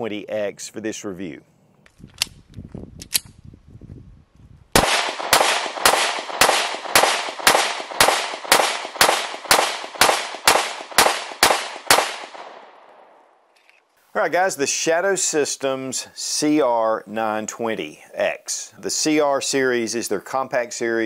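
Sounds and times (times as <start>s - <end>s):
pistol shots with echo: 4.8s - 13.2s.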